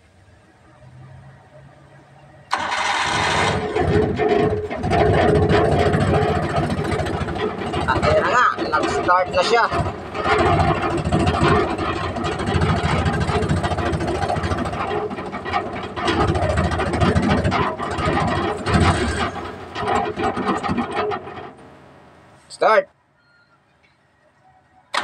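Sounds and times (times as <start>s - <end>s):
petrol engine running unevenly: 2.5s - 21.9s.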